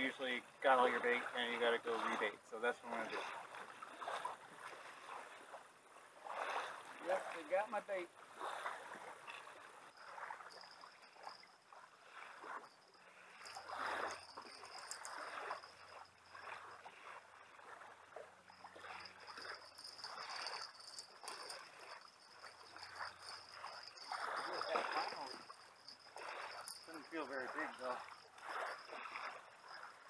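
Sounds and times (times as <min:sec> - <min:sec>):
water swishing at kayak: 0:00.0 - 0:30.0
fishing reel: 0:08.3 - 0:17.8, 0:18.5 - 0:30.0
faint high whine: 0:18.6 - 0:29.9.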